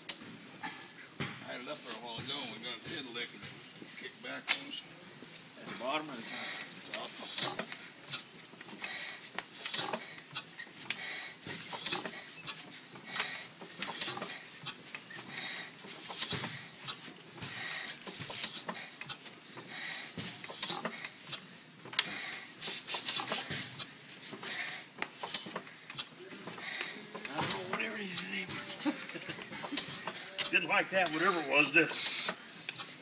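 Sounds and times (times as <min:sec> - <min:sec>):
engine puffing clatter: 0:07.2 - 0:33.0.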